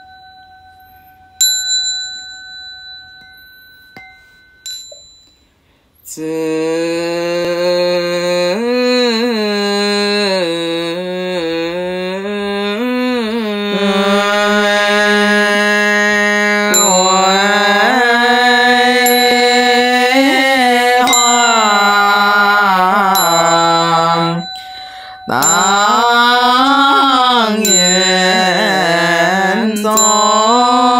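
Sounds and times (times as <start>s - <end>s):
small bell struck: 0.0s - 5.6s, 16.8s - 17.5s, 23.2s - 28.8s, 29.8s - 30.9s
person chanting: 6.0s - 30.9s.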